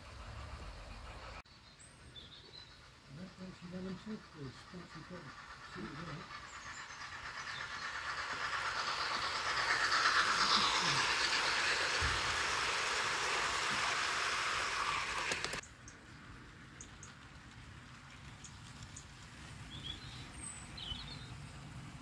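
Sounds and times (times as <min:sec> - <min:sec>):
model train wheels clattering: 0:02.7 - 0:15.6, 0:16.7 - 0:20.4.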